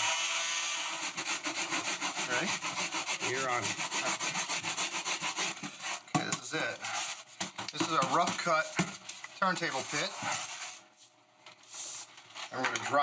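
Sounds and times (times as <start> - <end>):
plastic scraper rubbing foam: 0.0 - 8.7, 9.4 - 10.8.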